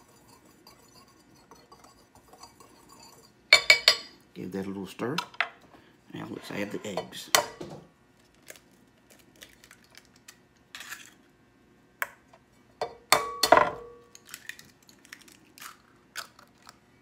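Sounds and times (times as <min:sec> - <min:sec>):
eggs cracking on a bowl: 0:08.4 - 0:11.2, 0:13.1 - 0:16.8.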